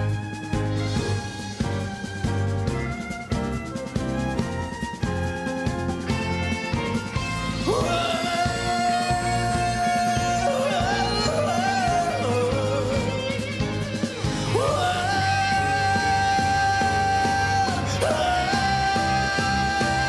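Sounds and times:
live band playing: 0.0s - 20.0s
man singing high notes: 7.6s - 13.5s, 14.4s - 20.0s.

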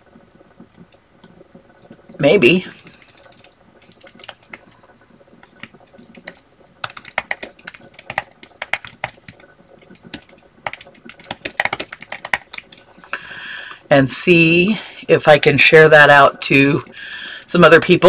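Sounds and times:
computer keyboard typing: 0.6s - 4.8s, 5.4s - 13.0s.

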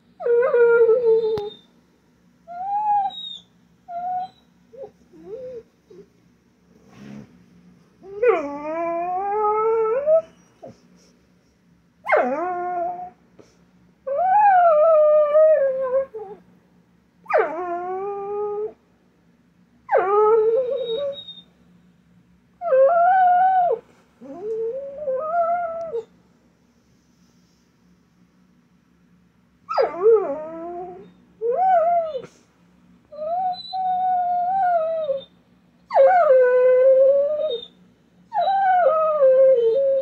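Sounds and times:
dog whining and howling: 0.2s - 1.8s, 2.5s - 6.1s, 8.0s - 10.8s, 12.0s - 13.2s, 14.0s - 16.4s, 17.2s - 18.8s, 19.9s - 21.5s, 22.6s - 26.1s, 29.7s - 32.4s, 33.1s - 40.0s.

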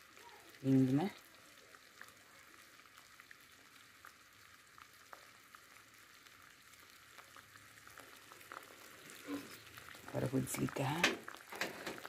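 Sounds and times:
syrup bubbling and crackling: 0.0s - 12.0s.

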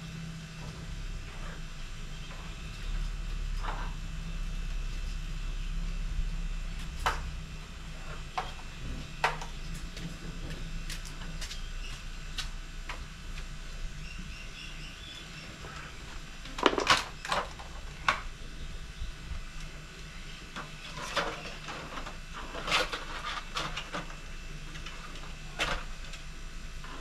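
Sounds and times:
faint bird chirps: 14.0s - 16.1s.

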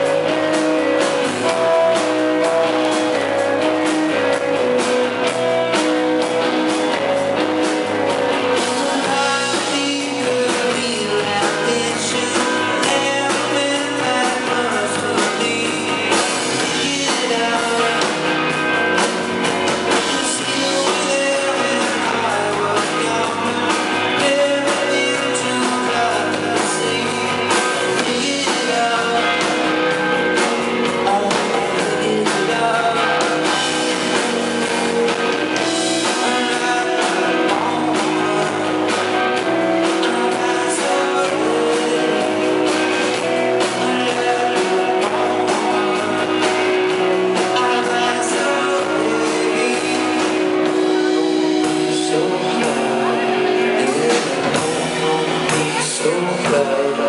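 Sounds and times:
drum kit: 0.0s - 57.0s
electric guitars: 0.0s - 57.0s
person singing: 0.0s - 57.0s.

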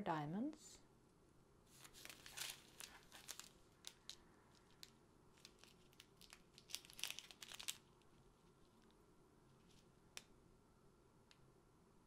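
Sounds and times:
plastic bag crinkling: 1.7s - 8.9s
small beads clicking in bag: 2.0s - 8.1s.

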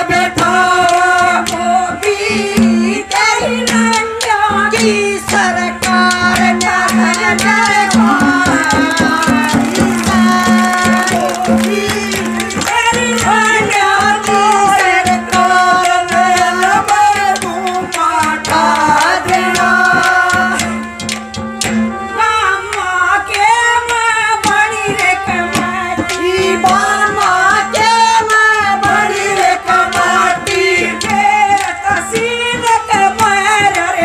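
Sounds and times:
woman singing folk song: 0.0s - 20.7s, 22.1s - 34.0s
drum strokes: 5.9s - 13.9s.

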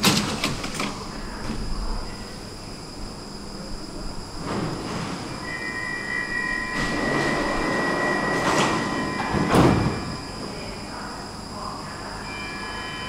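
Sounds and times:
train doors shutting: 0.0s - 2.5s, 3.9s - 10.8s
train machinery running: 3.9s - 10.6s
steady high beep: 5.4s - 10.4s, 12.2s - 13.0s.

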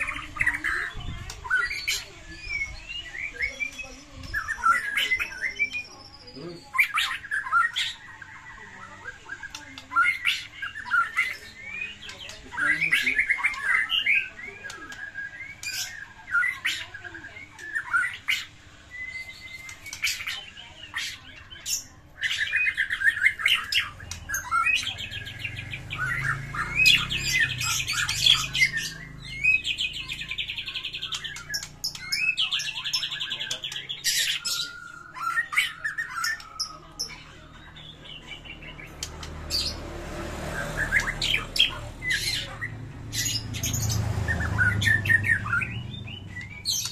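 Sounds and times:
bird song with whistled notes: 0.0s - 46.9s
fast rattling bird trills: 6.7s - 37.2s.

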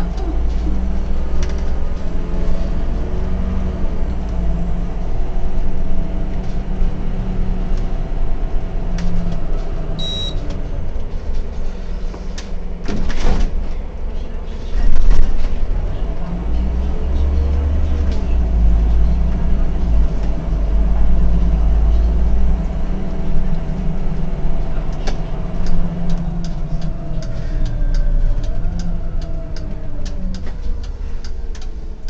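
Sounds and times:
bus engine rumble: 0.0s - 32.0s
bus jolt: 6.0s - 15.8s
short high beep: 10.0s - 10.4s
drivetrain whine: 13.6s - 32.0s.

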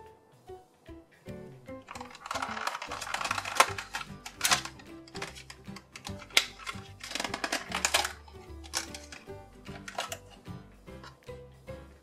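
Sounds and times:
background music with low notes: 0.0s - 12.0s
plastic packaging crackling: 1.8s - 10.3s.

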